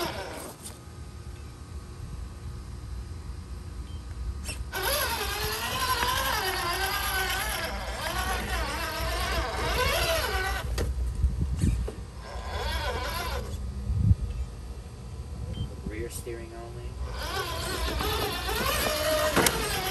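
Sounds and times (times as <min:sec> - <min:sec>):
rc car motor whining: 0:00.0 - 0:00.8, 0:04.4 - 0:10.9, 0:11.6 - 0:13.6, 0:17.0 - 0:19.9.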